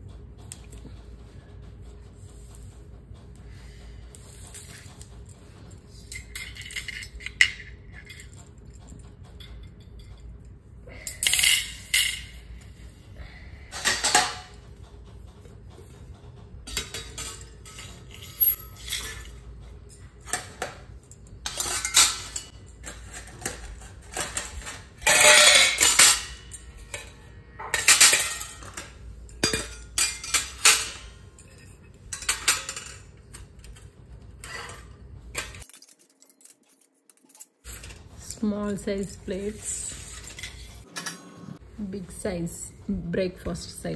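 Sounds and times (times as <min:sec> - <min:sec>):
steel plates clinking and scraping: 0:04.2 - 0:12.9, 0:13.7 - 0:14.6, 0:16.7 - 0:41.6.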